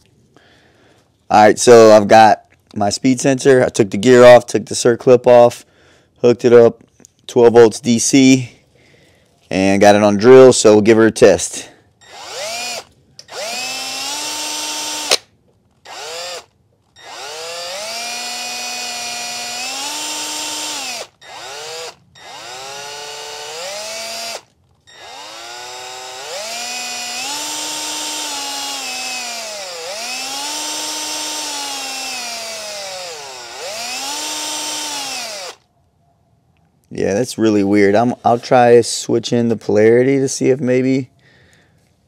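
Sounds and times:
cordless drill motor whining: 12.0 - 15.2, 15.8 - 35.6
sharp click: 15.1 - 15.3.

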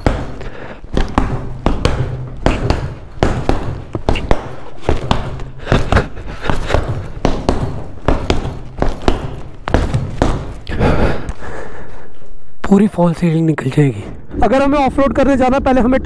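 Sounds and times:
punches on punching bag: 0.0 - 10.7.

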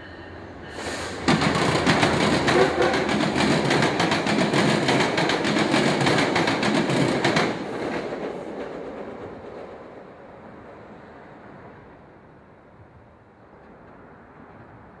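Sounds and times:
train wheels clattering over crossing: 0.9 - 9.8.

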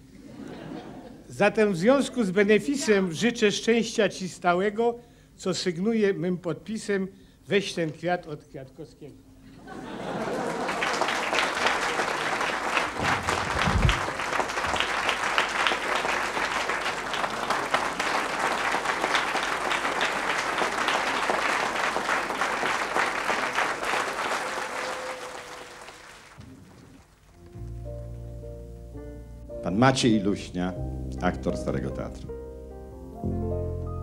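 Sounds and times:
audience applauding: 9.8 - 27.3.

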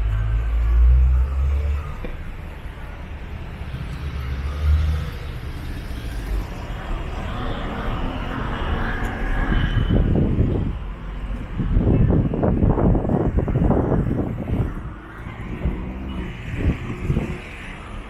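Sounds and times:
car engines rumbling: 0.0 - 18.0
wind noise on microphone: 9.2 - 18.0.

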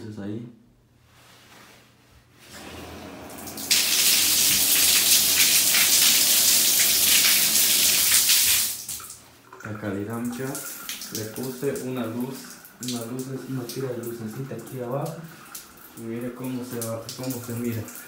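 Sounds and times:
rushing shower water: 2.5 - 9.2, 10.3 - 18.0.

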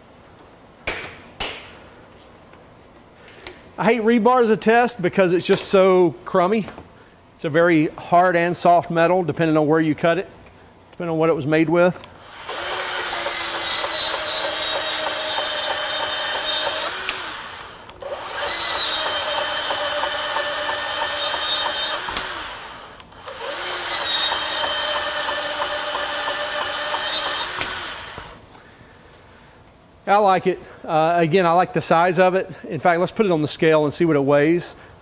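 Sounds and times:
band saw cutting steel bar: 12.2 - 28.4.

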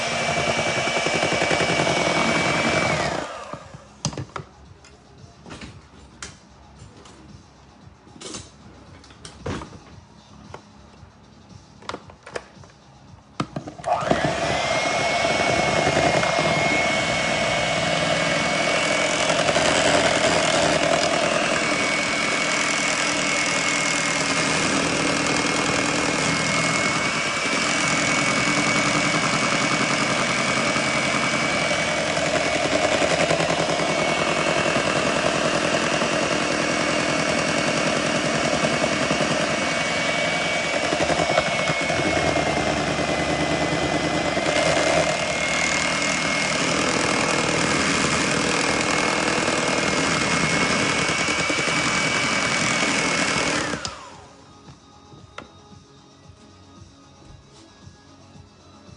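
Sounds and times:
electric hand mixer running: 0.0 - 3.9, 13.8 - 54.4.

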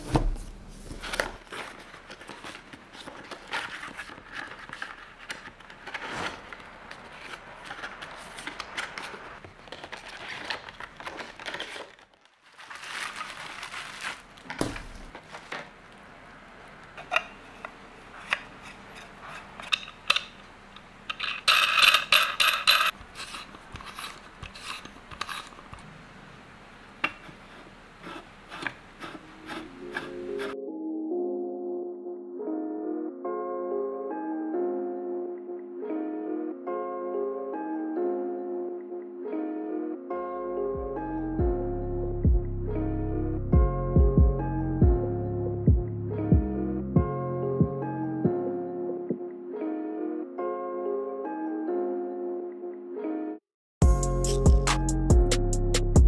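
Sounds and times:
cardboard and bubble wrap rustling: 0.0 - 15.9.

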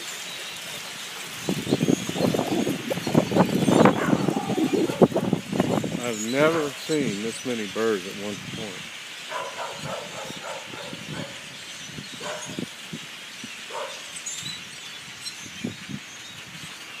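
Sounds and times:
flock of birds chattering: 0.0 - 17.0
individual bird calls: 0.0 - 17.0.

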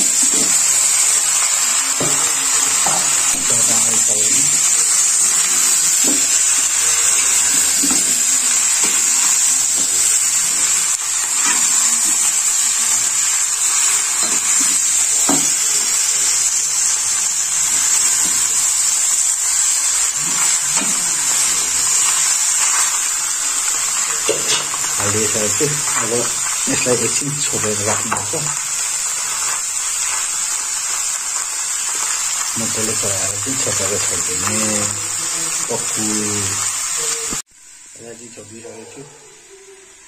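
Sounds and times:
meat sizzling in hot oil: 0.0 - 40.0
spatula scraping pan: 20.1 - 31.0.

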